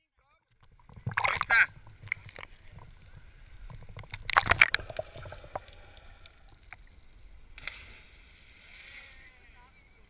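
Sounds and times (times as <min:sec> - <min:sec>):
water splashing: 0:00.5 - 0:09.6
steady rushing hiss: 0:04.9 - 0:10.0.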